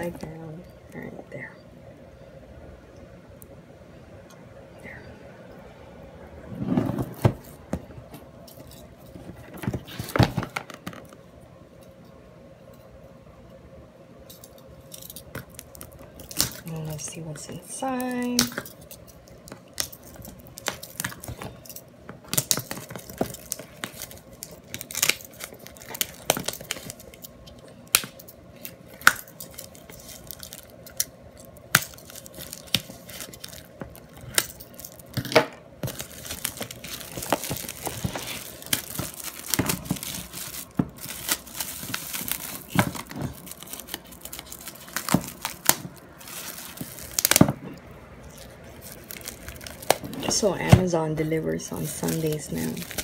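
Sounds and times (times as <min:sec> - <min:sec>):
plastic wrap tearing and crumpling: 0:15.0 - 0:17.2, 0:17.9 - 0:47.6, 0:48.2 - 0:53.0.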